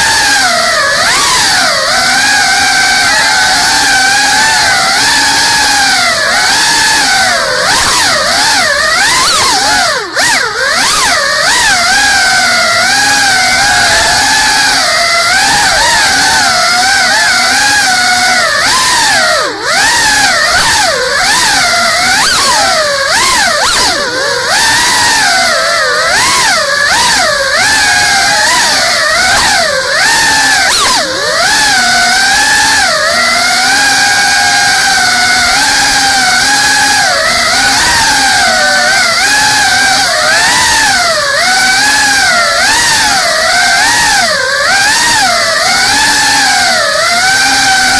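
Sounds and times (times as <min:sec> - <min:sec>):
quadcopter motors whining: 0:00.0 - 0:47.9.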